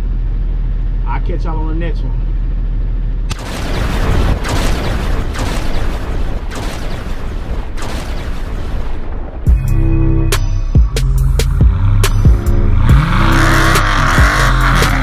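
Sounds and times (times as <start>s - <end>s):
thunder cracks: 3.4s - 9.6s
thunder rumble: 3.4s - 9.7s.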